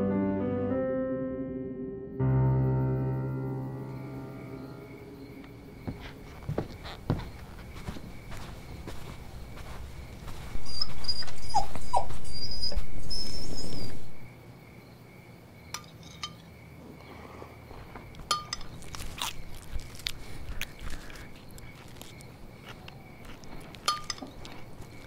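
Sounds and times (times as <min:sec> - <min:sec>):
dog whining: 0:10.6 - 0:14.2
spoon clinking against bowl: 0:23.9 - 0:24.3.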